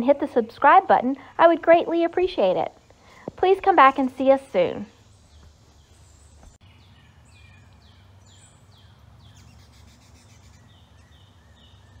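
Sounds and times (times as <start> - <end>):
low background noise: 0.0 - 12.0
songbirds calling: 0.0 - 12.0.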